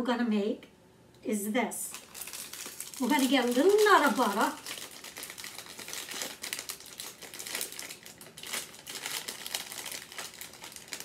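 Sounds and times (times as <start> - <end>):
plastic snack bag crinkling: 1.8 - 11.0.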